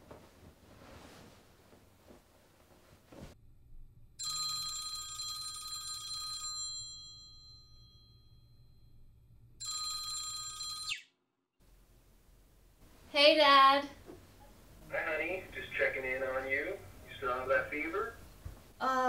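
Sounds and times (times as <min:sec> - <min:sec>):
phone ringtone: 0:04.2 - 0:08.7, 0:09.6 - 0:11.1.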